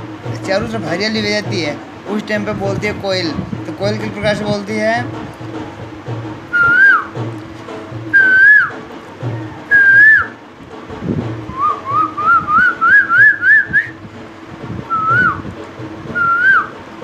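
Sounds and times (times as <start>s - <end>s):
man whistling bird call: 6.5s - 7.2s, 8.2s - 8.8s, 9.4s - 10.4s, 11.5s - 14.0s, 14.9s - 15.4s, 16.2s - 16.8s.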